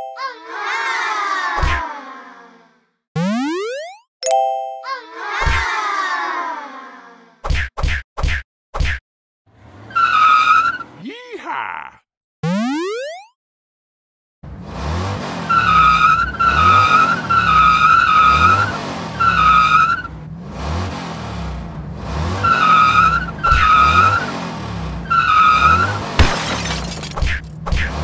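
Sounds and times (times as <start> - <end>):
tire squeals: 9.5 - 11.0, 14.8 - 21.2, 22.2 - 27.0
engine revving: 14.4 - 26.2.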